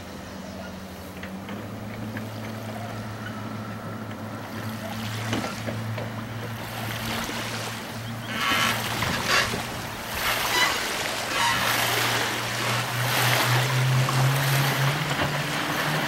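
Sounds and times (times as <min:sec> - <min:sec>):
boat motor humming: 0:00.0 - 0:16.0
water rushing along hull: 0:00.0 - 0:16.0.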